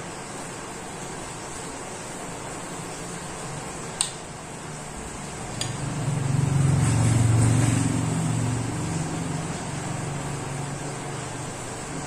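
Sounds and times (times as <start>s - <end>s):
vehicle engine hum: 4.9s - 12.0s.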